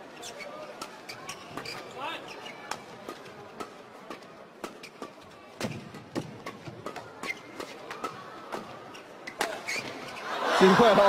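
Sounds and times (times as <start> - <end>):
rackets hitting shuttlecock: 2.6 - 9.9.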